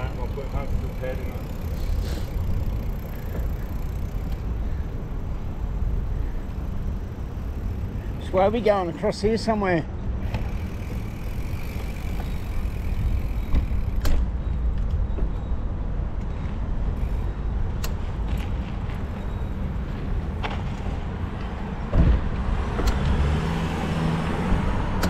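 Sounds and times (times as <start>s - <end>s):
bicycle road noise: 0.0s - 25.0s.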